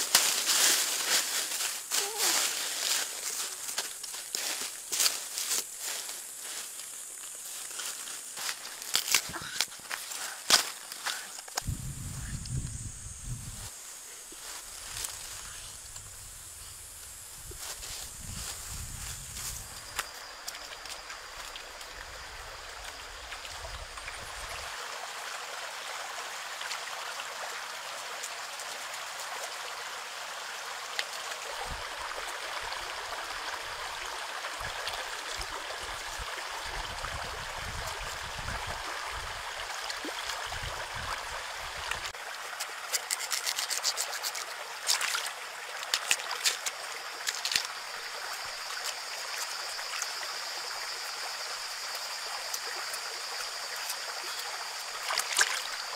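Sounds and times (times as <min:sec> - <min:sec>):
stream water trickling: 0:00.1 - 0:13.4, 0:18.4 - 0:55.9
clicks and scrapes of food handling: 0:42.9 - 0:45.0.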